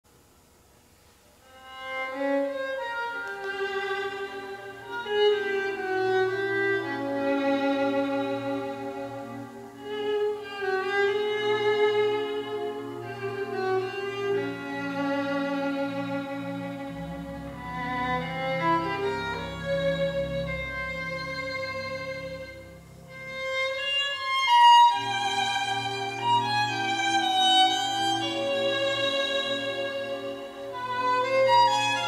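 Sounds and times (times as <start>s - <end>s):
solo violin melody over loudspeakers: 1.4s - 32.0s
held low accompaniment: 1.6s - 32.0s.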